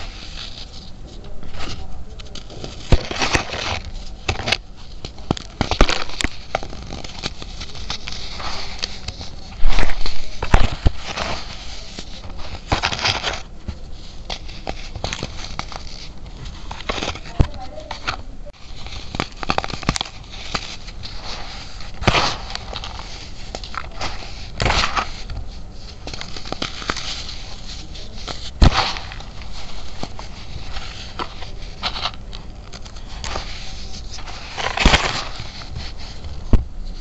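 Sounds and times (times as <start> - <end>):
baking soda crunching by hand: 18.6 - 36.5.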